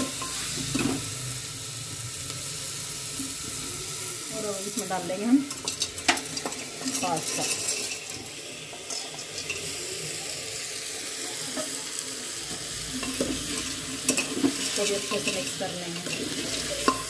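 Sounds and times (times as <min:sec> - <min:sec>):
frying sizzle: 0:00.0 - 0:17.0
spatula stirring: 0:05.4 - 0:09.8, 0:12.4 - 0:17.0.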